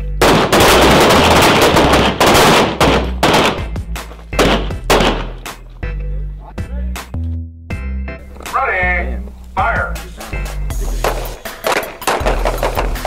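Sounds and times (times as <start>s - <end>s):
pistol gunshots: 0.0s - 5.5s.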